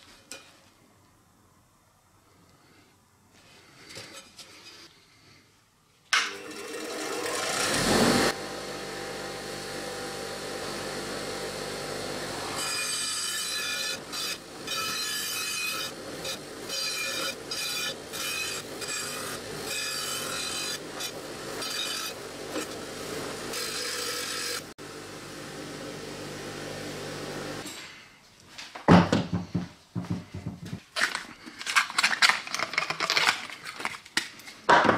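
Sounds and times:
bench grinder motor hum: 0:06.3 - 0:27.6.

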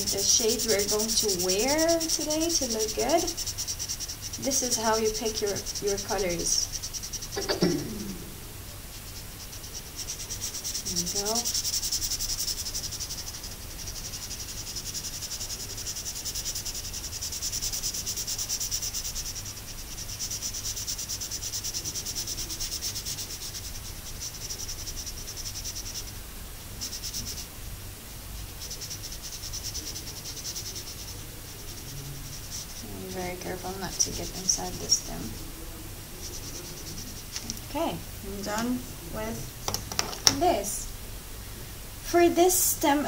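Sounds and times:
marker scribbling on paper: 0:00.0 - 0:07.8, 0:08.9 - 0:26.2, 0:26.8 - 0:27.5, 0:28.4 - 0:40.7.

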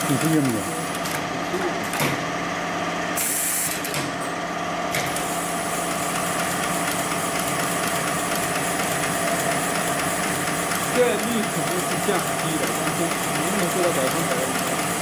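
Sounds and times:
sewing machine running: 0:00.0 - 0:02.0, 0:05.0 - 0:15.0.

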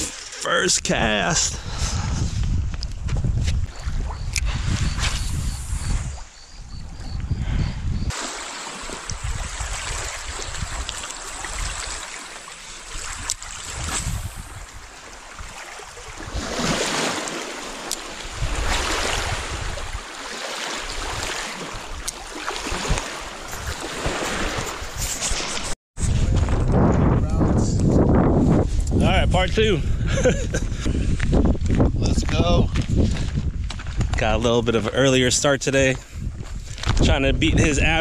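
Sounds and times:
wind on microphone: 0:00.8 - 0:12.0, 0:12.7 - 0:20.1, 0:20.8 - 0:38.0
small waves lapping at shore: 0:08.1 - 0:25.7.

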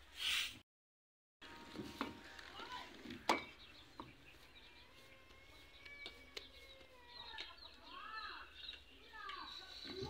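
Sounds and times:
bird chirps and calls: 0:02.6 - 0:10.0.

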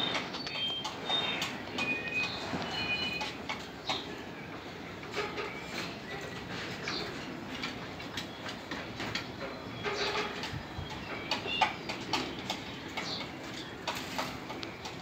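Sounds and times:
bird chirps: 0:00.0 - 0:04.1
birds clicking: 0:00.0 - 0:15.0.

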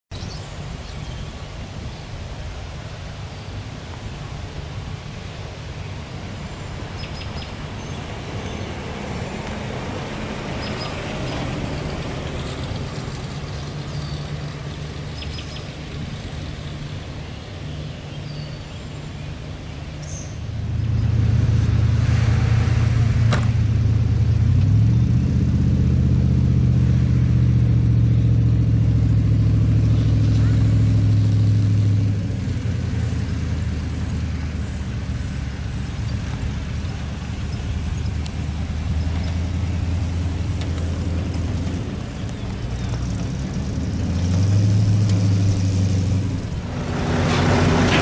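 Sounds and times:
bird chirps: 0:07.0 - 0:08.7, 0:15.1 - 0:15.8, 0:20.0 - 0:21.0
loud low hum: 0:11.2 - 0:36.7, 0:37.6 - 0:48.0
car engine running past: 0:19.4 - 0:48.0.

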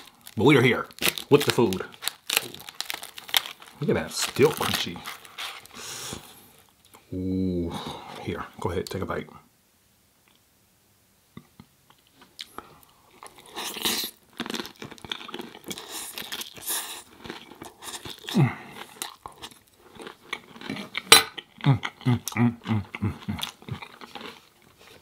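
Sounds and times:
crunchy chewing: 0:11.9 - 0:25.0
crunching bite: 0:13.2 - 0:24.6.

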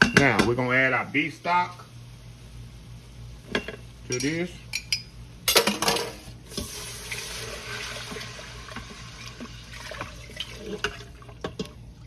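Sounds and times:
liquid pouring into metal pot: 0:06.5 - 0:11.7.

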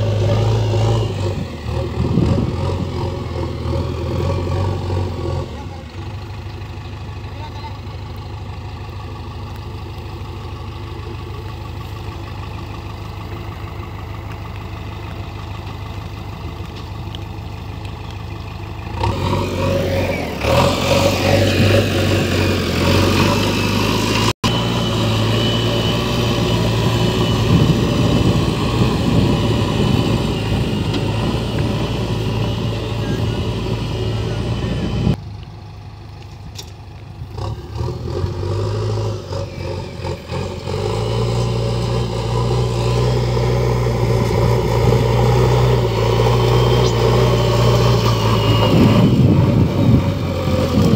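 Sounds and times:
diesel engine running: 0:00.0 - 0:50.9
loader bucket scraping soil: 0:18.9 - 0:35.2, 0:37.3 - 0:50.9.

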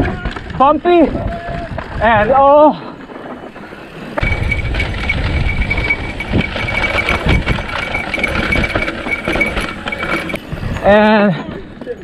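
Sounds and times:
wind on camera: 0:00.0 - 0:11.8
bike rattling over bumps: 0:00.0 - 0:12.0
bike tyres rumbling on dirt: 0:00.0 - 0:12.0
high-pitched whine: 0:03.3 - 0:11.9.

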